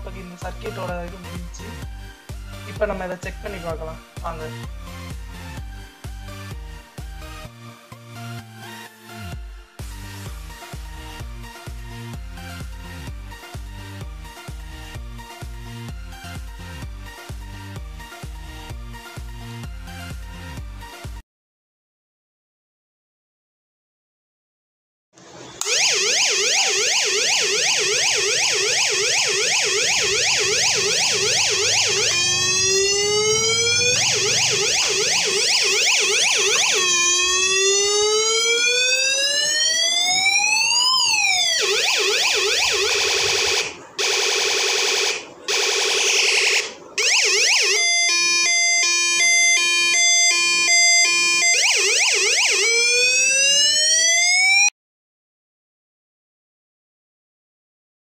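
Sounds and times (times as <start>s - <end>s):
electronic siren tones: 25.6s - 54.7s.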